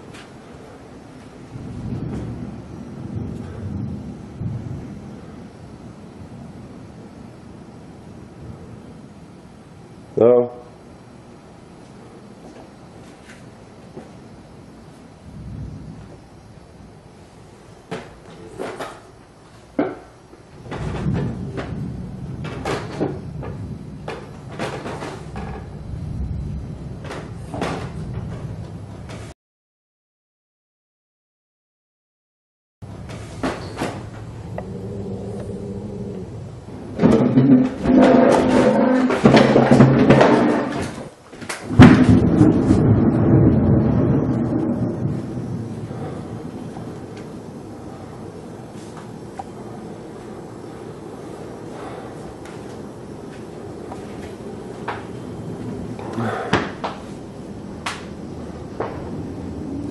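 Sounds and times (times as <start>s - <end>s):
knocks and thumps: 17.9s - 19.0s, 19.8s - 25.8s, 27.0s - 29.3s, 36.9s - 41.1s, 41.7s - 43.0s
low rumble: 20.6s - 29.0s, 34.1s - 40.7s, 41.8s - 59.9s
sharp crack: 37.0s - 44.7s, 57.8s - 58.2s
booming drum hits: 41.7s - 46.4s
heavy thuds: 53.3s - 57.2s.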